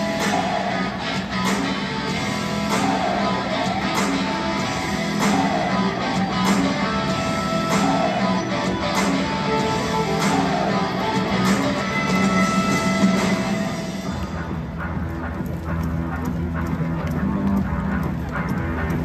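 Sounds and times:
electric guitar music over loudspeakers: 0.0 - 19.0.

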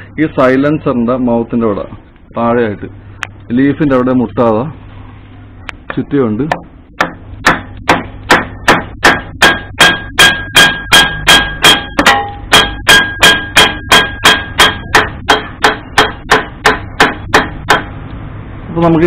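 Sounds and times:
hammer knocking on wooden block: 6.5 - 17.9.

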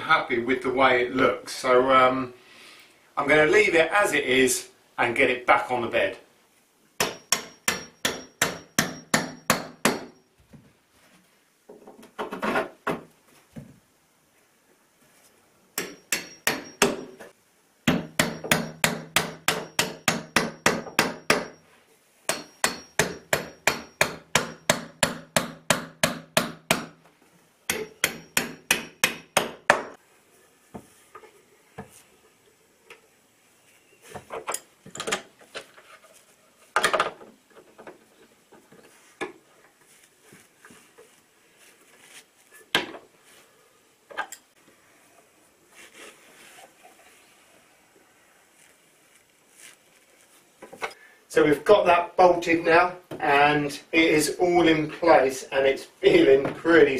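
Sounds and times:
hand tools knocking and clicking: 15.8 - 17.3, 27.7 - 30.0.

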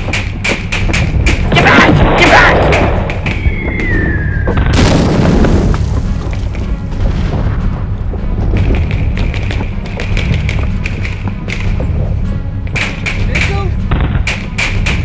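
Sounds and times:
film music: 0.0 - 15.0
low rumble: 0.9 - 12.6
loud explosion: 1.8 - 6.0
boom: 4.5 - 5.7.

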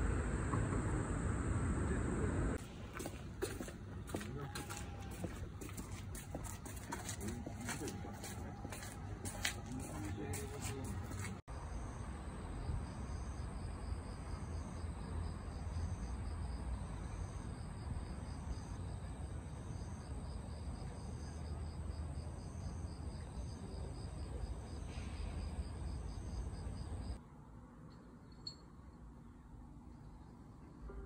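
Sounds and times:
crickets chirping: 0.0 - 2.6, 11.5 - 27.2
low night ambience rumble: 0.0 - 27.9.

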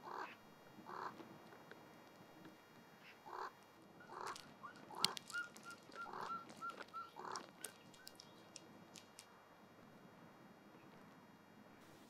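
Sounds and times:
harsh bird calls: 3.2 - 8.6.

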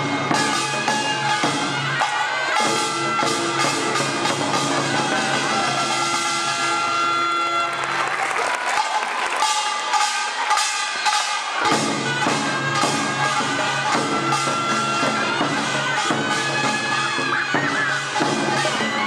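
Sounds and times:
drums beating: 0.0 - 19.0.

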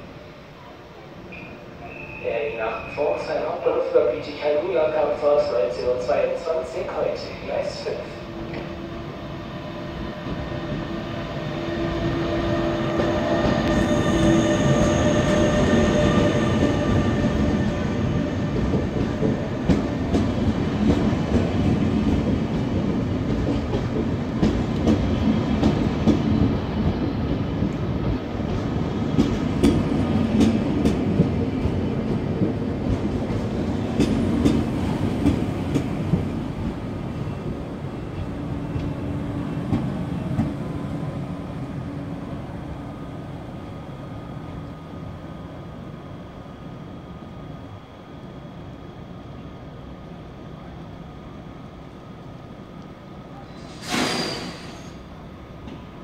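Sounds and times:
train coaches rumbling: 0.0 - 46.3
locomotive whine: 7.6 - 21.6.

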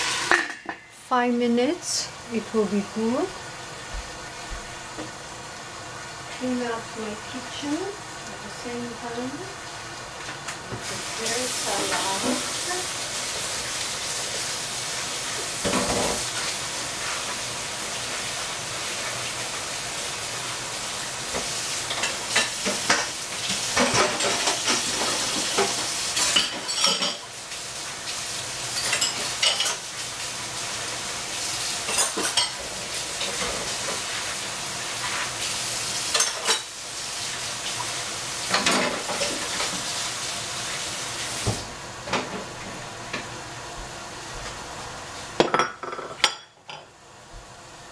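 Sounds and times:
sizzling hiss from covered pan: 0.0 - 45.5
dishes and utensils clattering: 0.2 - 0.9, 21.9 - 27.3, 28.7 - 29.8, 31.8 - 32.6, 36.1 - 36.7, 38.5 - 39.8, 45.4 - 46.8.

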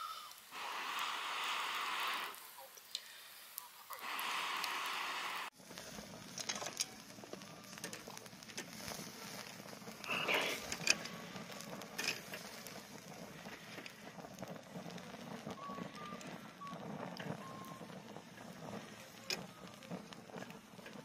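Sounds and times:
wood fire crackling: 0.0 - 21.0
metal tongs clicking on grill: 12.0 - 12.6.

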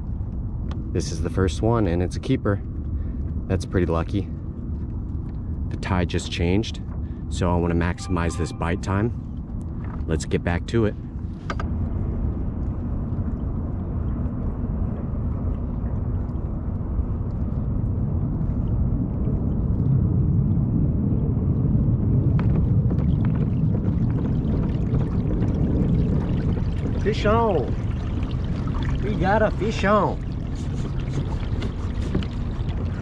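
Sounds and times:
water rushing along kayak hull: 22.2 - 33.0.

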